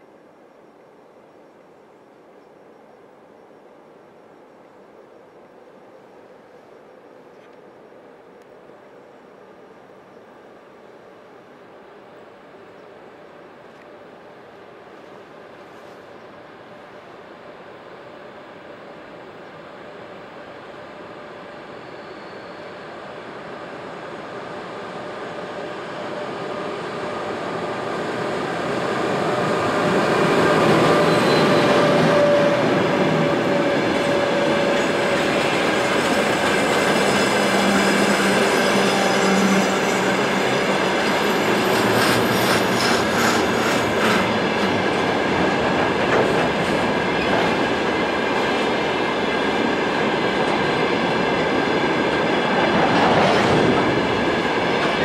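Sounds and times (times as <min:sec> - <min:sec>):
train wheels rolling on rails: 0:13.6 - 0:55.0
clickety-clack over rail joints: 0:30.9 - 0:55.0.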